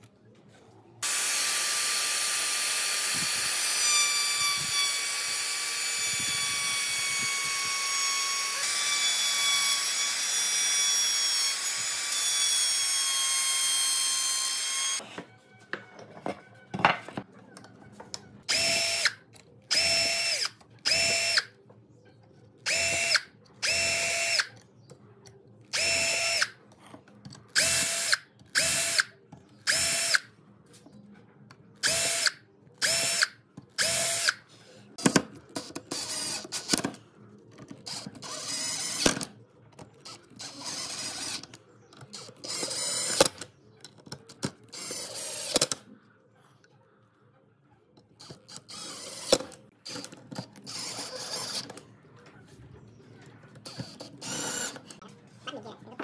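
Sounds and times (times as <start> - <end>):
electric drill whining: 1.0 - 15.0, 22.7 - 24.5, 25.8 - 26.5, 29.7 - 30.2, 31.8 - 34.4, 53.7 - 54.9.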